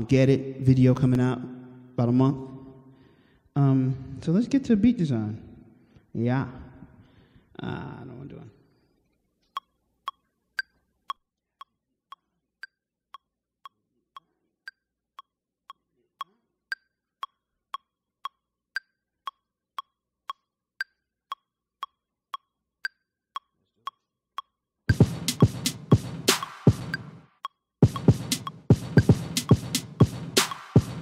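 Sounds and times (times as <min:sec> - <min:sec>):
electronic metronome clicking: 0:09.6 - 0:31.0
higher-pitched metronome click: 0:25.2 - 0:31.0.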